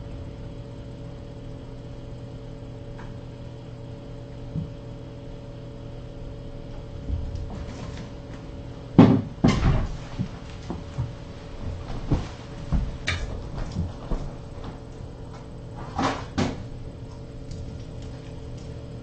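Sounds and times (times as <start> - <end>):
kittens thumping and knocking: 8.9 - 14.4.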